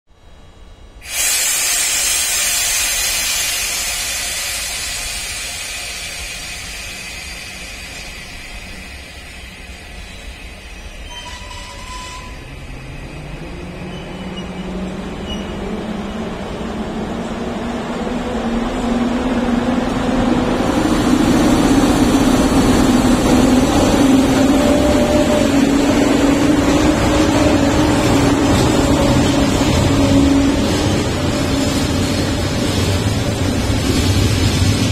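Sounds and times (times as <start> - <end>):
electric locomotive hum: 0.2 - 34.9
train coaches rolling past: 0.2 - 34.9
compressed air hissing: 1.0 - 9.2.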